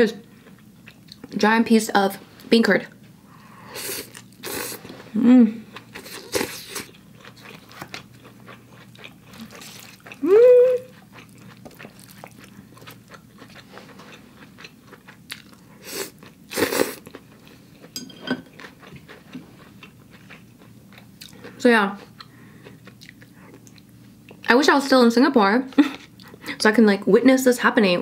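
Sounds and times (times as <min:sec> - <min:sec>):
person humming: 0:05.1 - 0:05.7, 0:10.2 - 0:11.0
wet chewing: 0:05.7 - 0:17.6.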